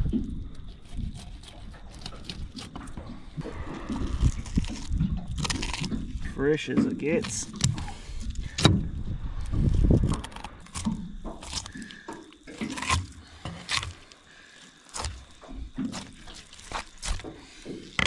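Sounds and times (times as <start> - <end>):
low rumble: 3.0 - 6.5.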